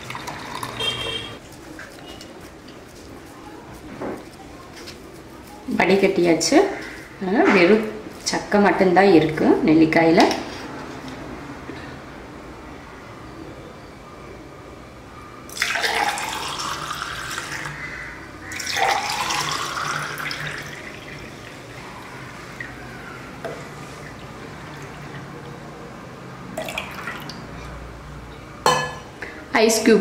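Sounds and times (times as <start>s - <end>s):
juice pouring into glasses: 0.0s - 1.3s, 15.5s - 17.8s, 18.5s - 25.4s, 26.5s - 27.6s.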